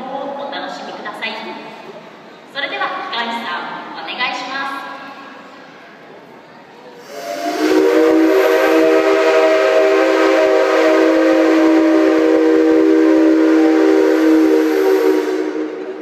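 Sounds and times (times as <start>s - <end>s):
steam locomotive whistle blast: 7.0s - 16.0s.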